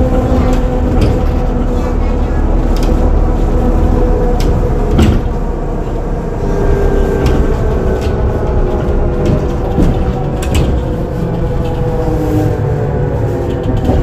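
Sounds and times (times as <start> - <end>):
trolleybus equipment humming: 0.0 - 14.0
sharp clicks and knocks: 4.3 - 5.9, 7.0 - 11.9.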